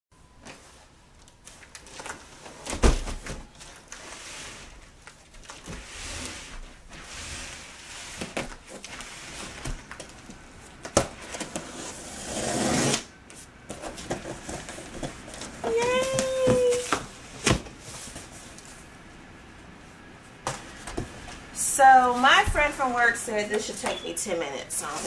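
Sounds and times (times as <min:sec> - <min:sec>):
cardboard scraping and rustling: 0:01.4 - 0:18.8.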